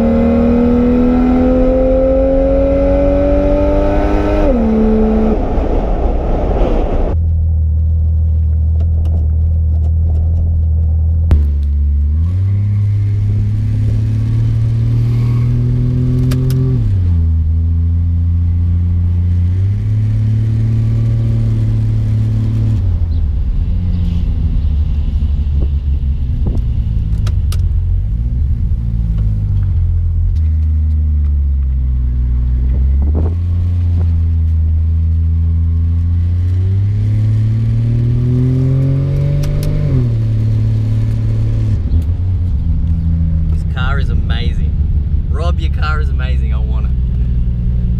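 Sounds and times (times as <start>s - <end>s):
car engine revving through gears: 0.0s - 7.2s, 11.3s - 17.2s, 35.7s - 42.2s.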